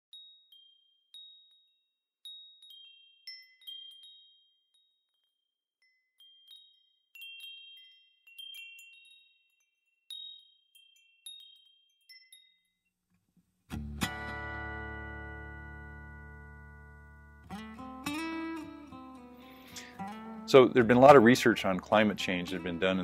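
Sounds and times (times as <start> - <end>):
chimes ringing: 0.1 - 12.9, 17.5 - 23.0.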